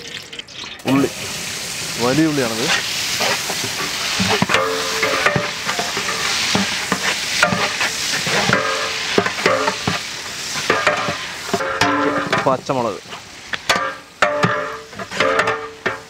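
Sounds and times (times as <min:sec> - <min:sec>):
onions sizzling in oil: 0:00.0 - 0:16.0
metal ladle scraping a pot: 0:02.6 - 0:10.0, 0:13.7 - 0:16.0.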